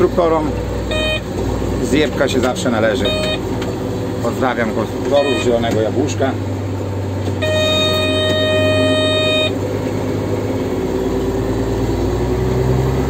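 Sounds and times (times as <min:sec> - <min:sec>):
tractor engine droning: 0:00.0 - 0:13.0
electronic warning beeper: 0:00.9 - 0:01.3, 0:03.0 - 0:03.5, 0:05.1 - 0:05.7, 0:07.4 - 0:09.6.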